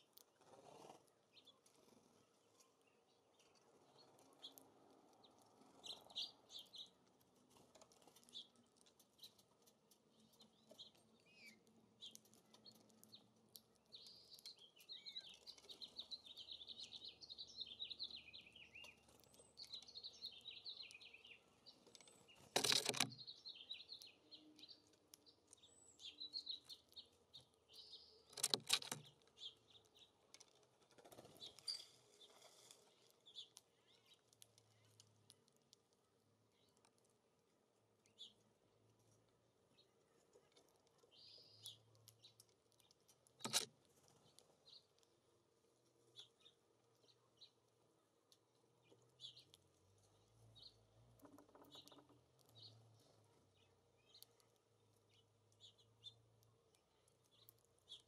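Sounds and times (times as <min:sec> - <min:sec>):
songbirds chirping: 0:00.0 - 0:58.0
fast jumbled warbling birdsong: 0:13.9 - 0:30.1, 0:41.1 - 0:42.4.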